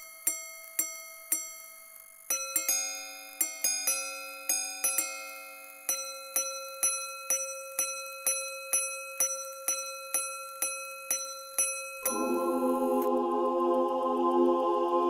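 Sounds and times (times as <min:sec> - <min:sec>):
watch gongs chiming: 0:02.3 - 0:13.1.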